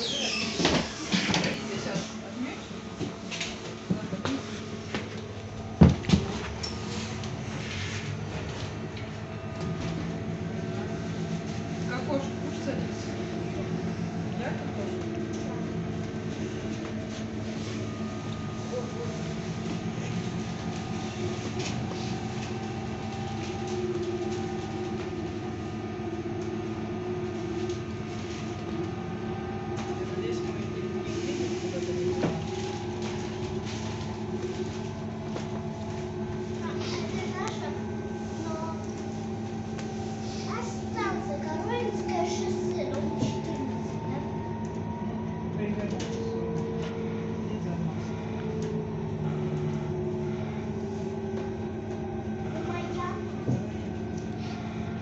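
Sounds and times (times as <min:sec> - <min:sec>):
electric drive whine: 0:00.0 - 0:55.0
road and cabin noise: 0:00.0 - 0:55.0.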